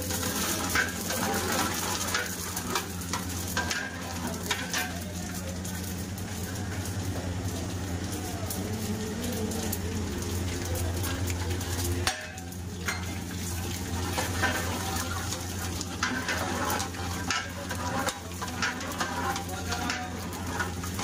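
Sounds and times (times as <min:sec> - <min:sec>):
spices sizzling in hot oil: 0:00.0 - 0:21.0.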